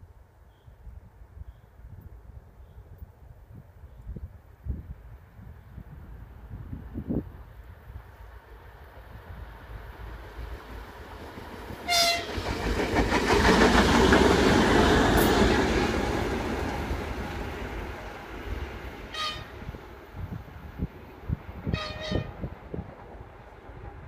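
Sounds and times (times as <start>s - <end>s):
diesel locomotive engine rumbling: 5.8s - 24.0s
train wheels clattering on rails: 10.3s - 18.6s
train horn toot: 11.8s - 12.4s, 19.1s - 19.7s, 21.6s - 22.5s.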